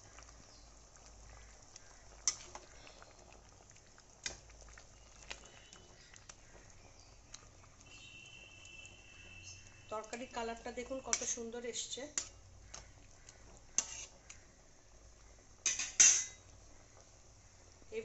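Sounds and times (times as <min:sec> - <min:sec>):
gravy simmering in a pot: 0:00.0 - 0:18.0
metal spatula clicking on pot: 0:02.2 - 0:02.6, 0:11.0 - 0:14.4.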